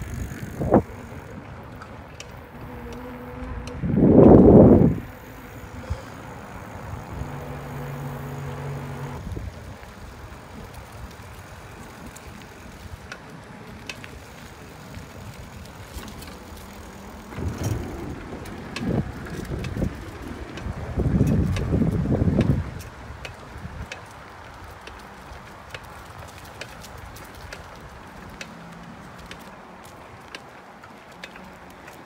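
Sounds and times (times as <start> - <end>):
wind on microphone: 0.0 - 1.7, 2.5 - 13.1, 17.2 - 23.9
bicycle tyre noise: 0.0 - 32.0.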